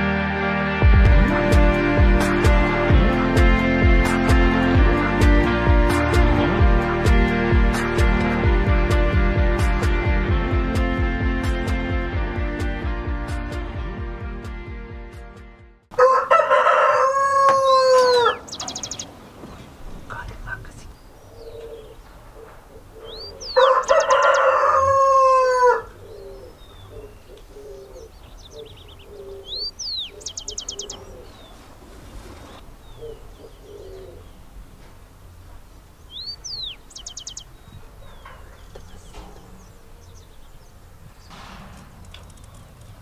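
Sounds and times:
rooster crowing: 15.9s - 19.0s, 23.3s - 26.6s
small bird trilling call: 17.7s - 19.1s, 23.1s - 24.2s, 26.1s - 31.6s, 36.1s - 39.0s.

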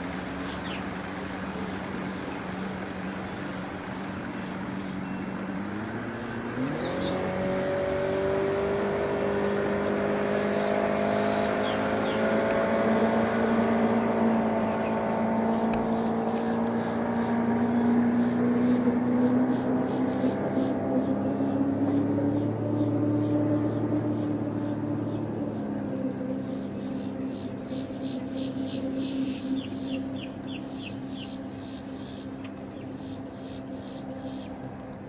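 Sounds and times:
outboard motor revving: 0.0s - 35.0s.

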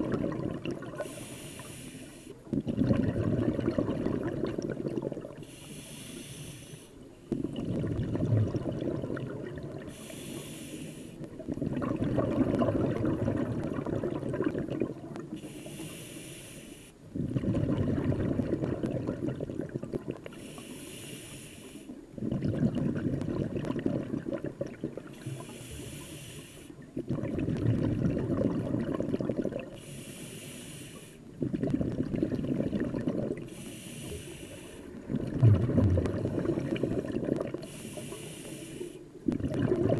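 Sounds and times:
exhaled bubbles burbling underwater: 0.0s - 1.7s, 2.4s - 5.6s, 7.2s - 10.5s, 11.2s - 15.5s, 17.1s - 20.4s, 22.0s - 26.0s, 26.8s - 29.8s, 31.3s - 34.2s, 34.8s - 39.9s
regulator hiss on inhale: 1.0s - 2.5s, 5.4s - 7.1s, 9.8s - 11.3s, 15.3s - 17.1s, 20.2s - 22.1s, 25.1s - 26.9s, 29.7s - 31.4s, 33.4s - 35.0s, 36.7s - 39.2s.

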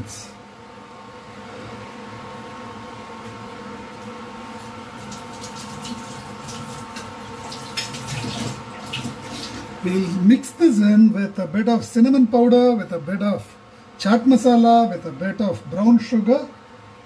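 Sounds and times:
cooling fan hum: 0.0s - 17.0s
food frying crackles and pops: 5.0s - 9.8s.

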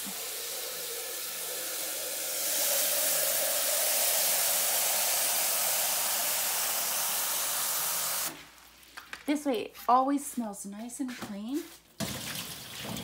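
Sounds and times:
hose spraying into metal pail: 0.0s - 8.6s, 12.0s - 13.0s.

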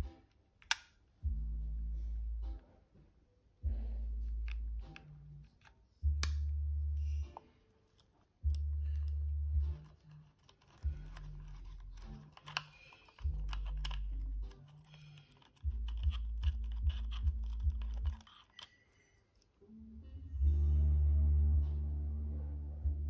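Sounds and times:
background music with deep bass: 1.2s - 2.6s, 19.9s - 23.0s
small plastic clicks and taps: 8.0s - 18.8s.

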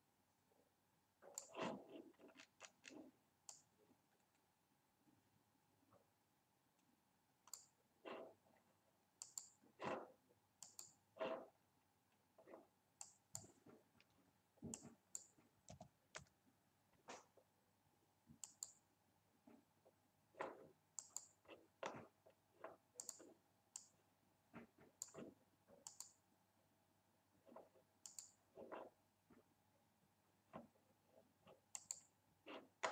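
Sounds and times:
computer mouse clicks: 1.2s - 4.5s, 7.4s - 8.3s, 9.2s - 10.0s, 10.6s - 11.4s, 13.0s - 16.4s, 18.4s - 18.8s, 20.4s - 22.1s, 22.7s - 24.0s, 24.9s - 26.2s, 28.0s - 28.9s, 31.4s - 32.9s.

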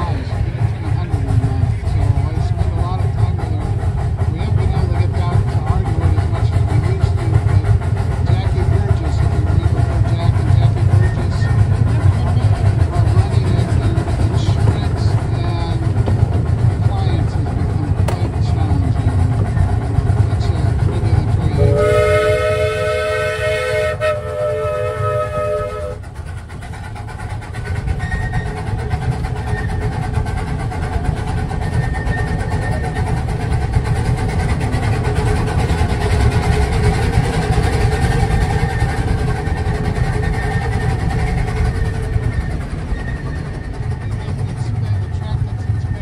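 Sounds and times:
small train rumbling: 0.0s - 46.0s
steam locomotive chime whistle: 21.6s - 26.0s.

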